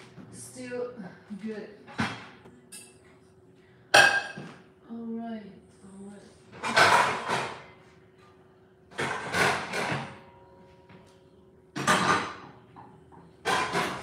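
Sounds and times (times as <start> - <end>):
oven rack and cookware scraping: 13.4 - 14.0.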